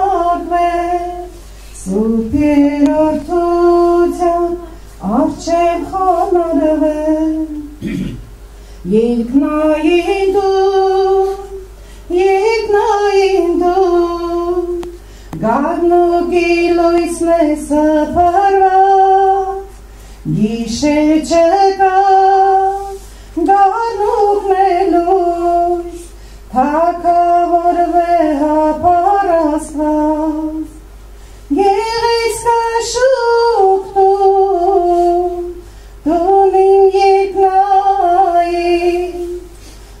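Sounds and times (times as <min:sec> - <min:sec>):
woman singing solo: 0:08.8 - 0:19.7.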